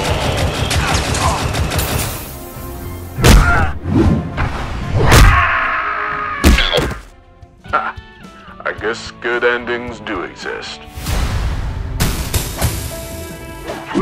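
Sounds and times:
rapid blaster fire: 0:00.0 - 0:02.3
background music: 0:00.0 - 0:14.0.

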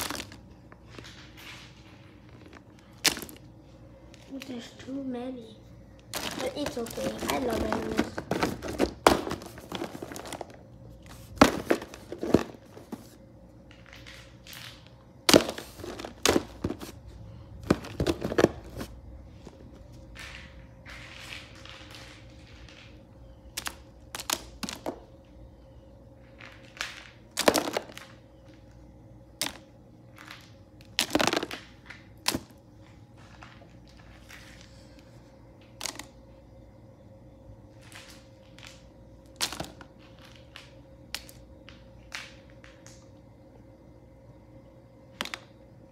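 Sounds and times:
plastic toy figures clattering: 0:06.1 - 0:10.6.

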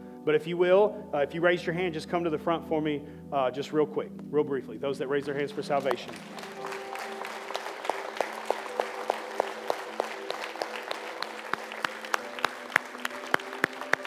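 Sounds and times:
light applause: 0:05.5 - 0:14.0
person clapping steadily: 0:05.6 - 0:14.0.

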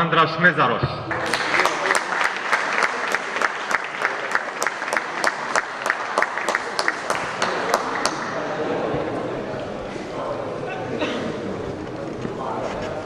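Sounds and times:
rhythmic clapping: 0:01.1 - 0:08.4
audience applauding: 0:01.1 - 0:08.8.

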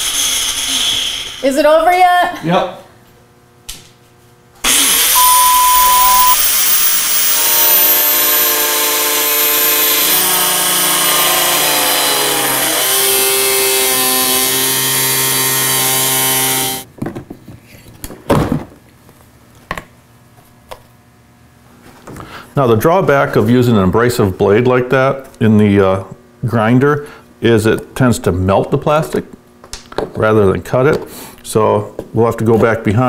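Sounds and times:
angle grinder cutting plastic: 0:04.6 - 0:16.9.

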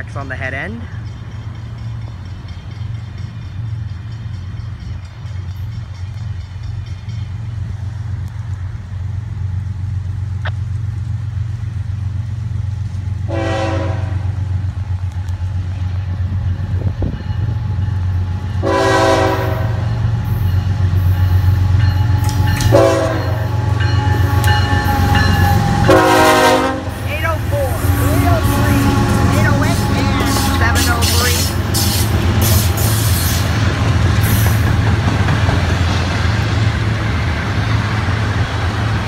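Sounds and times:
diesel locomotive engine rumble: 0:00.0 - 0:39.0
train air horn blasts: 0:13.3 - 0:14.4, 0:18.6 - 0:19.9, 0:21.3 - 0:33.4.

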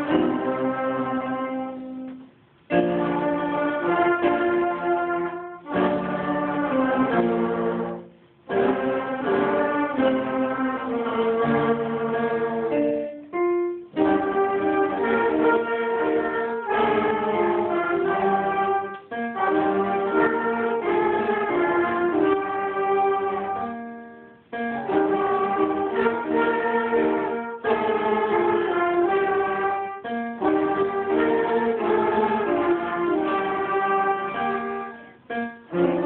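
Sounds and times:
concert band playing: 0:00.0 - 0:23.7.

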